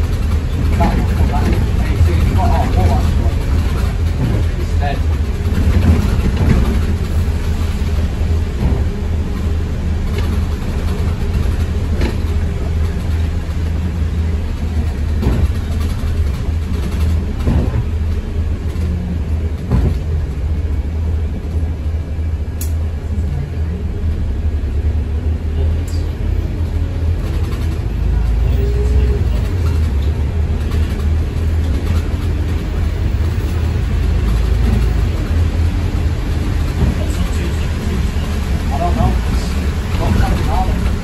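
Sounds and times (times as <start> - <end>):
knocks and rattles: 0.0 - 7.5, 8.4 - 20.3, 28.7 - 41.0
bus engine droning: 0.0 - 41.0.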